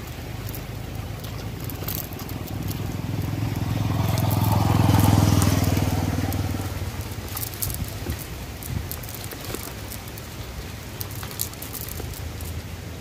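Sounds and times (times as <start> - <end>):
vehicle engine passing by: 0.0 - 9.7.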